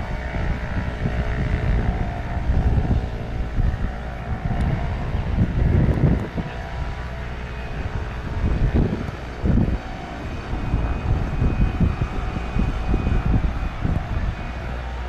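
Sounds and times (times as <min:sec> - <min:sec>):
gusty low buffeting: 0:00.0 - 0:15.0
jet engine rumble and whine: 0:00.0 - 0:15.0.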